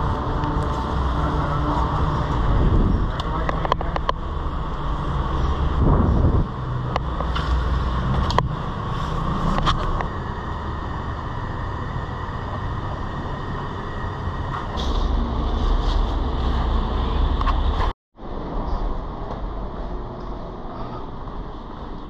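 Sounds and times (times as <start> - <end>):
low rumble in parking garage: 0.0 - 22.0.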